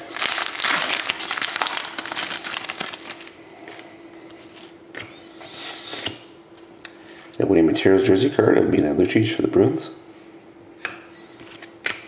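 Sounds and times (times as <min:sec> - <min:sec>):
wrapper tearing and crinkling: 0:00.0 - 0:03.4.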